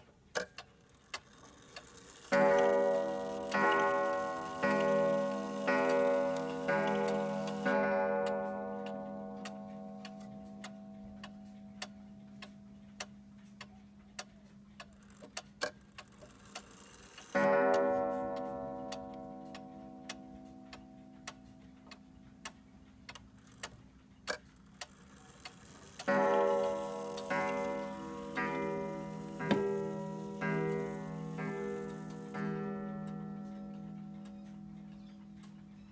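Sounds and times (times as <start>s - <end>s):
pendulum clock ticking: 0.0s - 35.9s
clock striking a gong: 2.2s - 12.7s, 17.4s - 22.2s, 26.0s - 35.9s.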